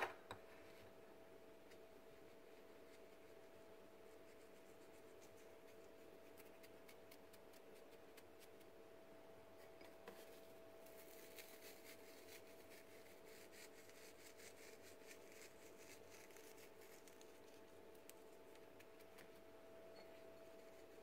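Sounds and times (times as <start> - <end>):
faint steady hum: 0.0 - 21.0
light ticks and rustles: 13.8 - 21.0.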